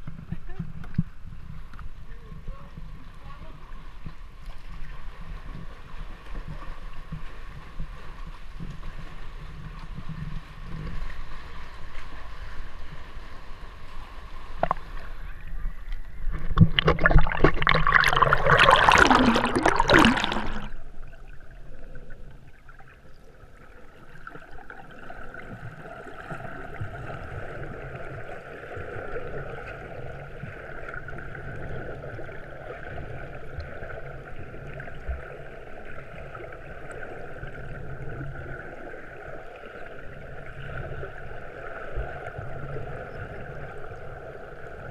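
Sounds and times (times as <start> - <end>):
muffled underwater wash: 0.0 - 44.9
rush of splashing water: 3.2 - 44.9
water sloshing around kayak: 14.5 - 30.9.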